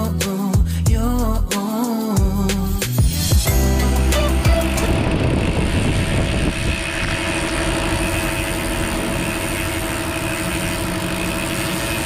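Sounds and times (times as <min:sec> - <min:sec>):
small motor running: 0:03.5 - 0:12.0.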